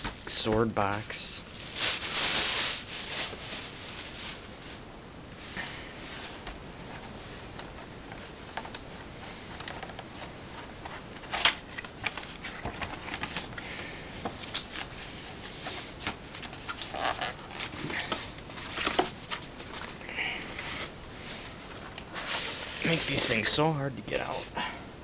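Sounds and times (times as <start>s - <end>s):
cardboard boxes scraping and sliding: 22.1s - 23.5s.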